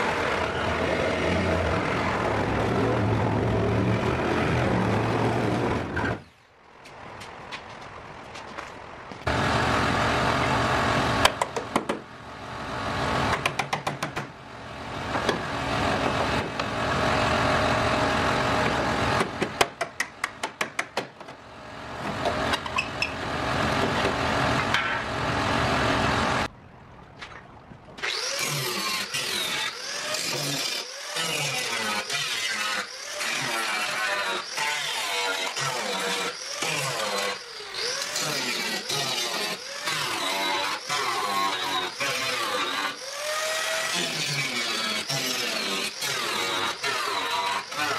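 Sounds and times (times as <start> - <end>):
power tools cutting metal: 28.0 - 47.9.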